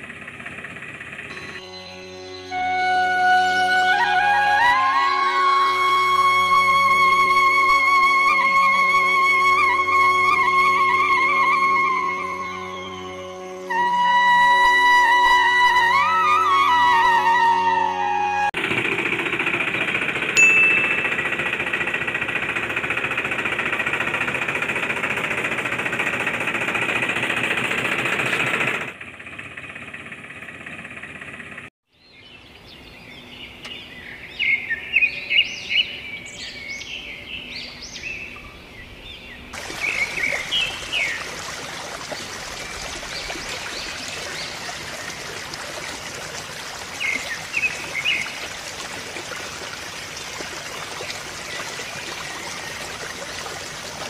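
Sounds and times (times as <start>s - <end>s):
loud rattling machine: 0.0s - 1.5s, 18.6s - 31.7s
birds chirping: 32.0s - 48.9s.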